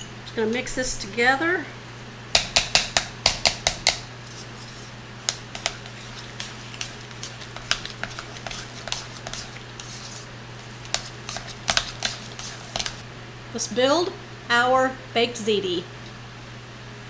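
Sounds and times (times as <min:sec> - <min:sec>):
fork stirring wet mixture: 0:02.4 - 0:13.0.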